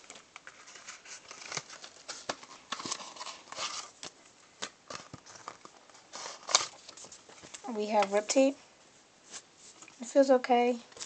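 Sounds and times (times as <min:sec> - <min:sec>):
packaging rustling: 0:00.0 - 0:08.2.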